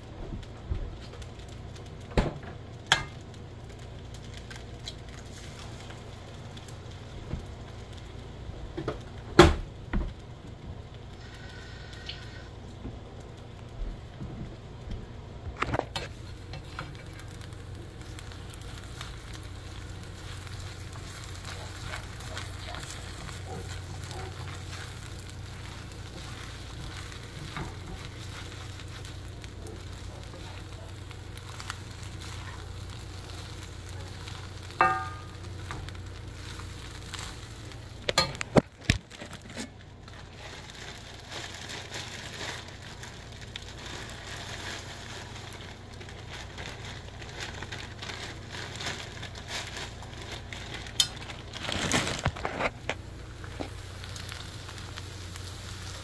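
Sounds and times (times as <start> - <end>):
food sizzling in pans: 0.0 - 51.6, 52.4 - 56.0
steady low hum: 0.0 - 56.0
tongs tossing rice in pan: 2.9 - 6.8, 15.9 - 51.6, 52.2 - 56.0
utensils knocking on pans: 34.8 - 35.3.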